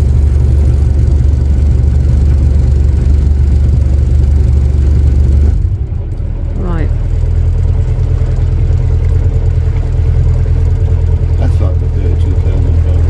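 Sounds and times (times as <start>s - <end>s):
boat engine humming: 0.0s - 13.0s.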